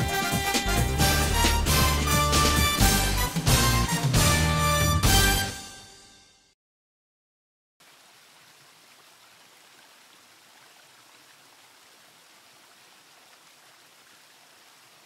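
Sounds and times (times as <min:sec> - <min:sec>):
faint waterfall rushing: 0:07.8 - 0:15.0.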